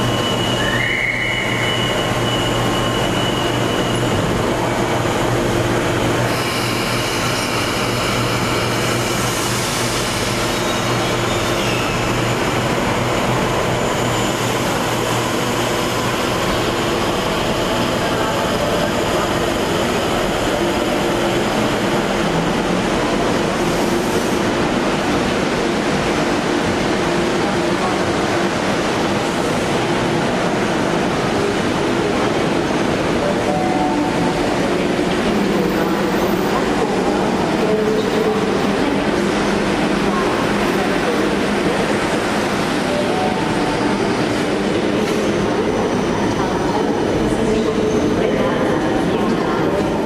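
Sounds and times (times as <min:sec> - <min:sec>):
high wheel squeals: 0:00.0 - 0:04.4
train running on rails: 0:00.0 - 0:50.0.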